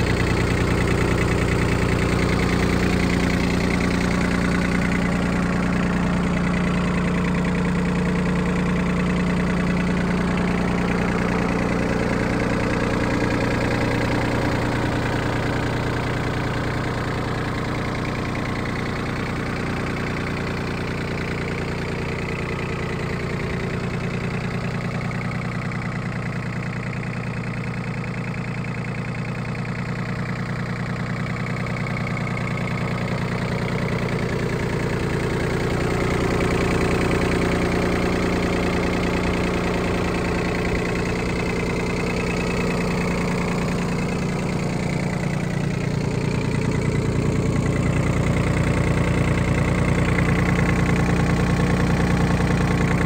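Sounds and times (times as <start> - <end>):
tractor diesel engine idling: 0.0 - 53.0.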